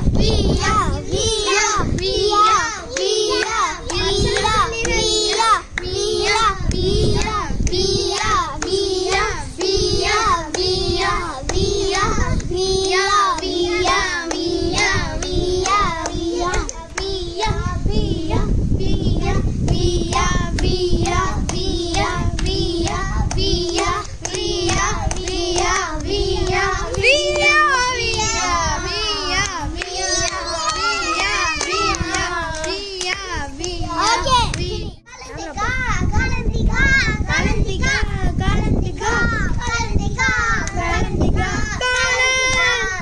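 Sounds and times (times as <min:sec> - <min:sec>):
person singing in high voice: 0:26.4 - 0:35.4.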